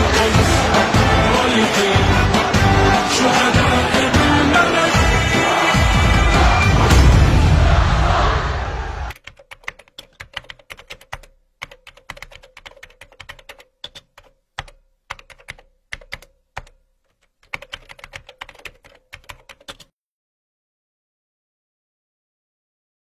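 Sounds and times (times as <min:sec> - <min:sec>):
keyboard keystroke clicks: 0:09.2 - 0:19.9.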